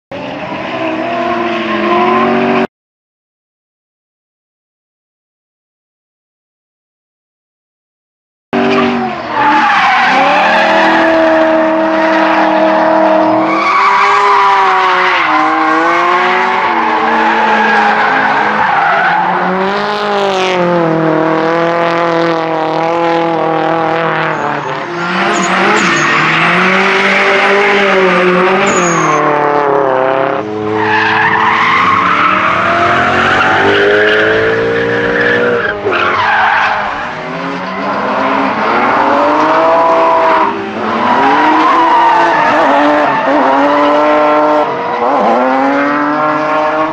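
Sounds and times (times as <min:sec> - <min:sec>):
car engines revving: 0:00.1 - 0:02.7, 0:08.6 - 0:46.9
tyre squeal: 0:08.7 - 0:15.8, 0:24.3 - 0:27.0, 0:28.6 - 0:29.4.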